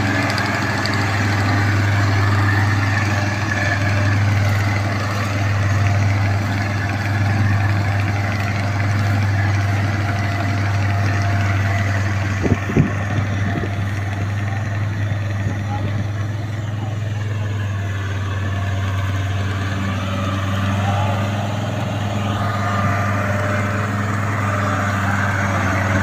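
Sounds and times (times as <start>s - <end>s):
combine harvester engine drone: 0.0s - 26.0s.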